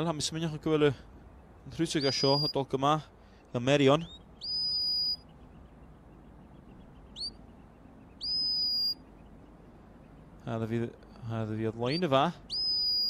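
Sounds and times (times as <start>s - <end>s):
high rising whistles: 4.4s - 5.2s, 8.2s - 9.0s, 12.5s - 13.0s.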